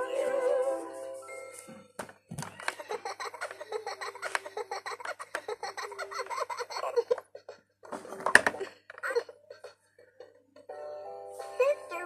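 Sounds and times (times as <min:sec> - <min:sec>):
toy speaker recorded giggle: 0:02.6 - 0:10.7.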